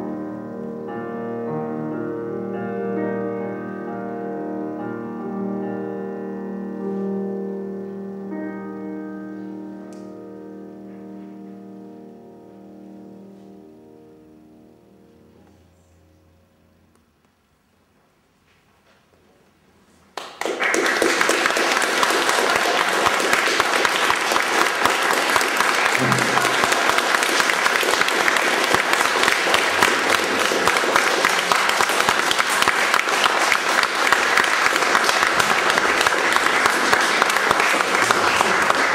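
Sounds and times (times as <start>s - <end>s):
audience applause: 20.2s - 38.9s.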